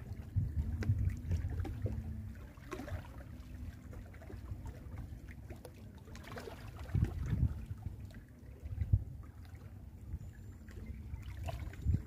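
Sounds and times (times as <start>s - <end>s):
waves lapping against rocks: 0.0s - 9.8s
wind rumble on microphone: 0.0s - 12.0s.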